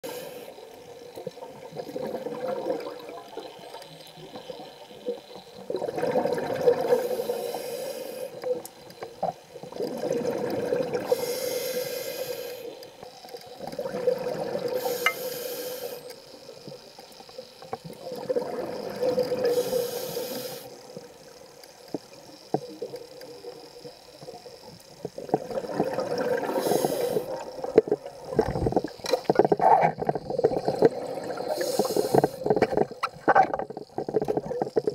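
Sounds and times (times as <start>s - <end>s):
regulator inhale hiss: 0.0s - 0.9s, 6.8s - 8.6s, 11.0s - 13.1s, 14.7s - 16.8s, 19.3s - 21.1s, 26.4s - 27.6s, 30.4s - 32.7s
gurgling exhaled bubbles: 1.5s - 3.7s, 5.6s - 7.3s, 9.7s - 11.3s, 13.6s - 15.0s, 17.9s - 19.7s, 25.2s - 34.9s.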